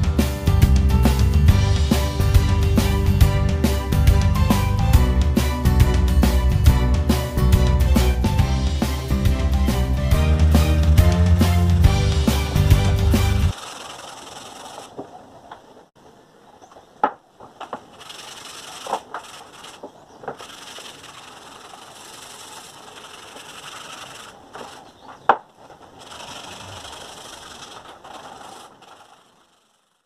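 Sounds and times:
sandpaper rasping on steel blade: 17.9 - 24.9.

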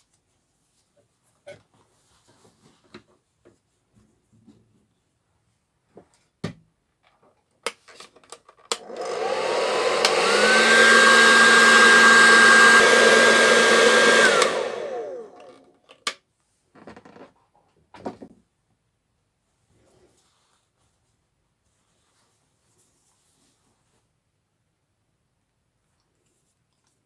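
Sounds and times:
hair dryer whine: 8.7 - 15.7.

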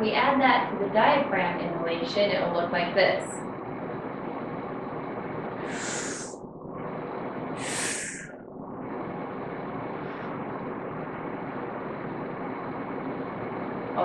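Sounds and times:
room hum: 0.0 - 14.0
woman breathing in deeply: 5.6 - 6.4, 7.6 - 8.4.

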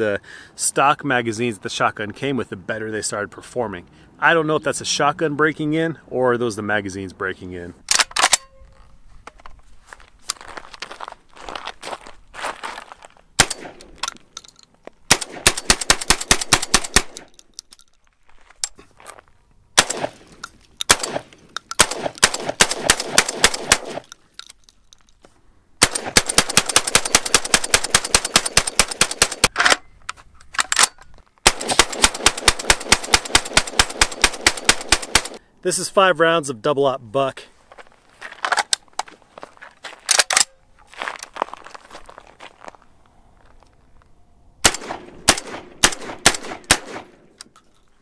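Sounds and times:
shotgun firing rapid shots: 13.4 - 13.8, 15.1 - 17.3, 19.8 - 20.2, 20.9 - 24.1, 25.8 - 29.5, 31.4 - 35.4, 44.6 - 47.2.

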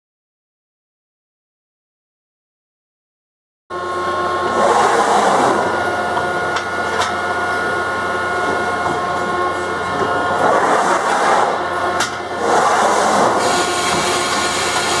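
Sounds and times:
hydraulic press machine hum: 3.7 - 15.0.

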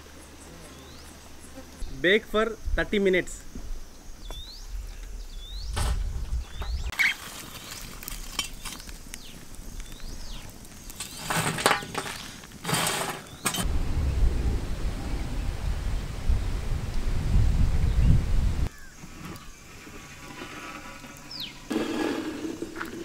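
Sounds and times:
low wind rumble: 1.8 - 6.9, 13.6 - 18.7
charcoal clattering on metal lid: 11.0 - 13.6.

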